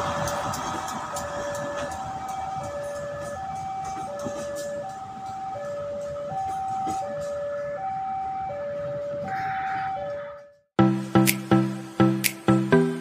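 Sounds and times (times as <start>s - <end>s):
train passing: 0.0s - 9.4s
level crossing alarm: 0.1s - 10.6s.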